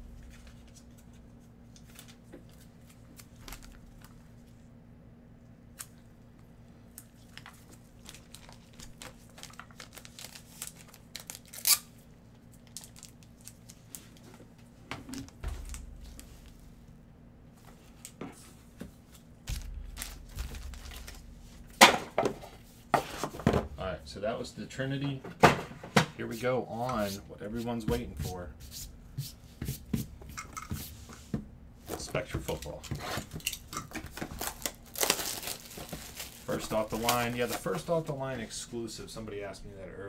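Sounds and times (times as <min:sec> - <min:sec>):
plastic wrapping crinkling: 0:01.8 - 0:04.2, 0:07.0 - 0:14.3, 0:19.5 - 0:21.8, 0:33.4 - 0:38.1.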